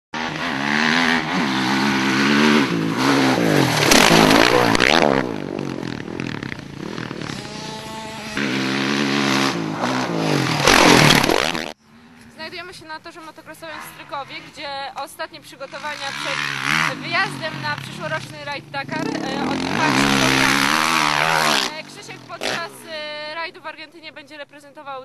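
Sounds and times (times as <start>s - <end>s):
dirt bike engine revving: 0.2s - 11.8s, 15.6s - 23.1s.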